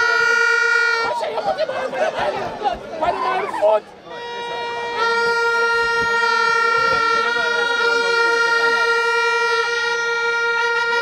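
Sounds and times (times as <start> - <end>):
horn blowing long note: 0.0 - 1.4, 4.1 - 11.0
faint crowd voices: 0.0 - 11.0.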